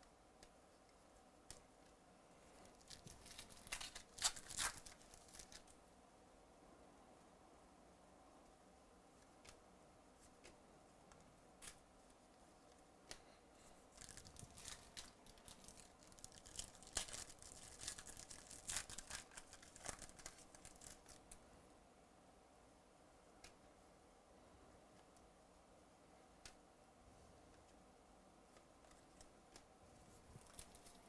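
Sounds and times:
foil pack tearing and crinkling: 0:02.8 - 0:05.6, 0:14.0 - 0:21.2.

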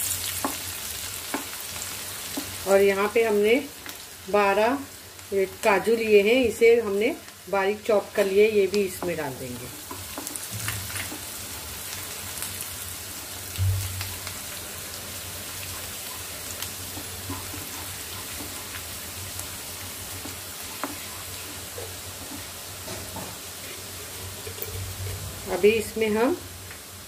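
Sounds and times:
oil sizzling: 0:00.0 - 0:27.0
wooden spatula tapping: 0:01.3 - 0:01.6, 0:08.8 - 0:11.3, 0:20.2 - 0:21.1
low thump: 0:13.6 - 0:13.9.

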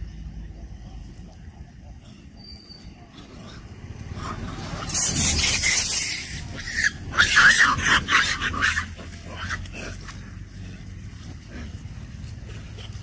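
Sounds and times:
macaques screaming: 0:04.1 - 0:09.8
faint low rumble: 0:06.4 - 0:13.0.

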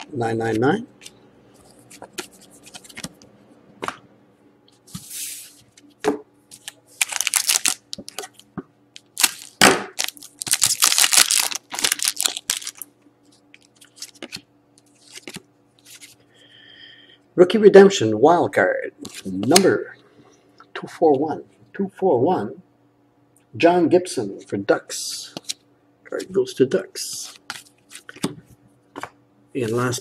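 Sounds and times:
foil wrapper crinkling and tearing: 0:07.0 - 0:08.3, 0:09.0 - 0:12.9.

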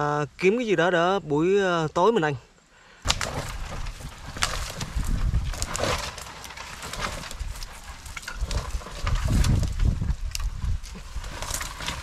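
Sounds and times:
wood knocking and snapping: 0:03.1 - 0:12.0.

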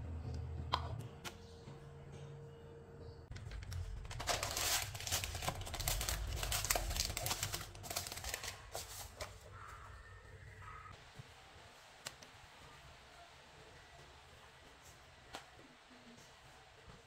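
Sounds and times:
baking paper crinkling: 0:03.3 - 0:10.0.

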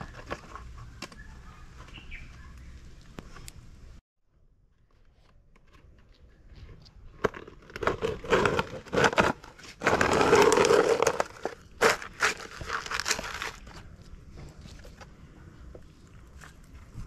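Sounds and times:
wet mortar crunching: 0:07.6 - 0:14.0.

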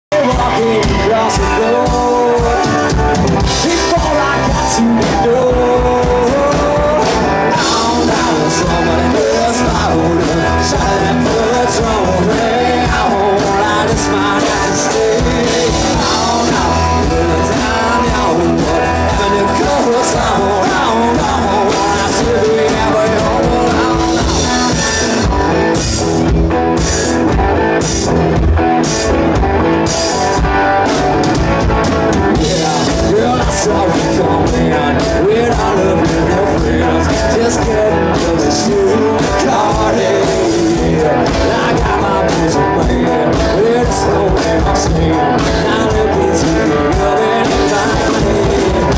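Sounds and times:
male lead vocal: 0:00.0 - 0:26.0, 0:32.1 - 0:48.9
country-rock band playing: 0:00.1 - 0:48.9.

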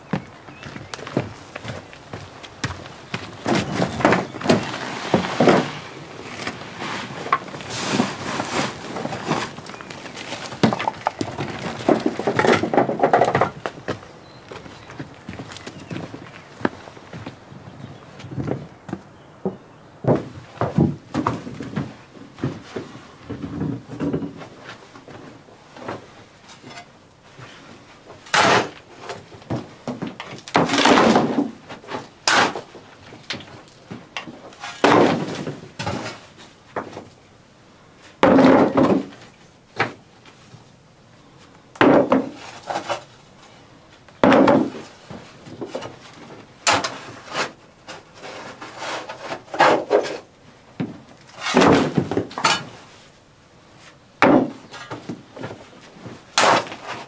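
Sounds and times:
loose earth rustling: 0:00.0 - 0:37.3.

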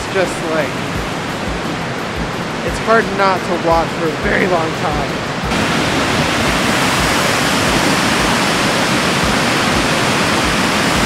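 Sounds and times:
water rushing over spillway: 0:00.0 - 0:11.0.

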